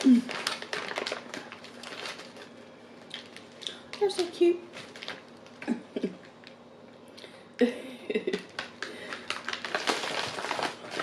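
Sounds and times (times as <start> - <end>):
plastic candy wrappers crinkling: 0.0 - 5.6, 8.3 - 11.0.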